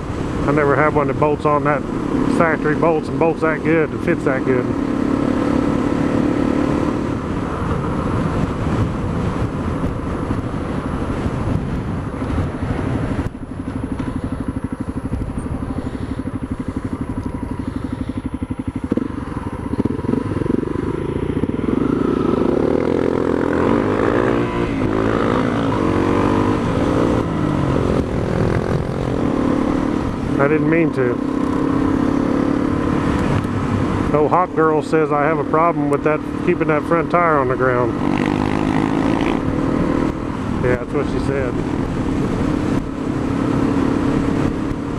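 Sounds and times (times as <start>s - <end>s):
motorcycle engine: 0.0s - 44.9s
wind rush: 3.0s - 34.2s.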